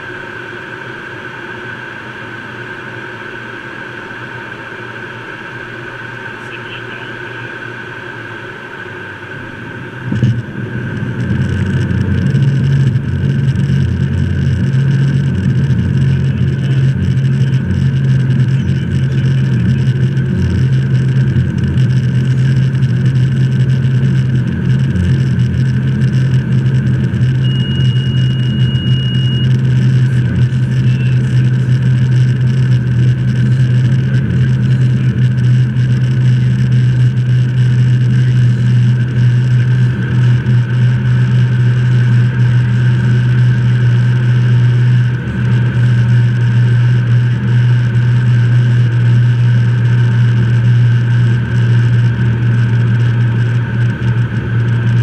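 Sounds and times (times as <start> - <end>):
high steady tone: 0.0 - 20.5, 26.8 - 32.0
cockpit airflow and engine rumble: 0.0 - 55.0.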